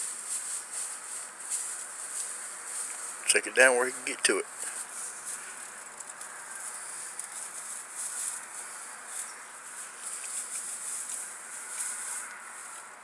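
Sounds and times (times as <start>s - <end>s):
tinsel toy rustling: 4.5s - 12.9s.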